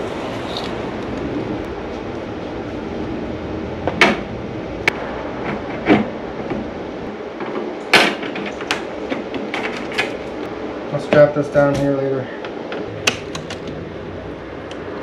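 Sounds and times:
wires rubbing and rustling: 7.4 - 10.5.

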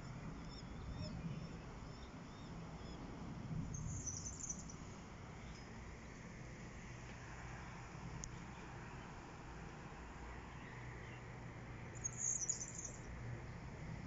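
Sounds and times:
small birds chirping: 0.3 - 6.2, 10.0 - 13.6.

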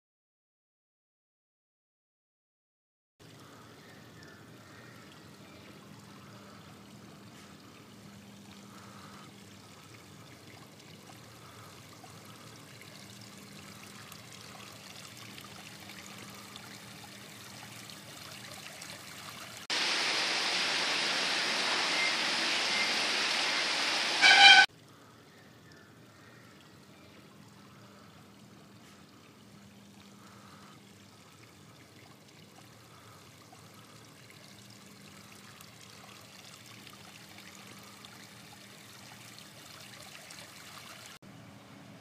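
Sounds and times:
fountain water rushing: 5.6 - 24.7.

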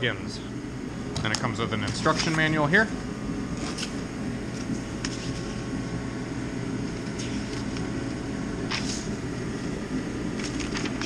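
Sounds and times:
background hiss and hum: 0.0 - 11.0
paper sheets rustling: 1.9 - 2.5, 3.6 - 5.7, 6.8 - 8.1, 8.7 - 9.2, 10.3 - 11.0.

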